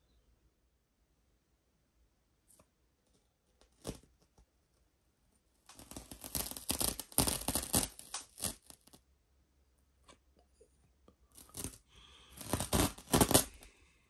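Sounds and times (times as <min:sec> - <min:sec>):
masking tape tearing: 0:05.7 - 0:09.0, 0:11.4 - 0:13.6.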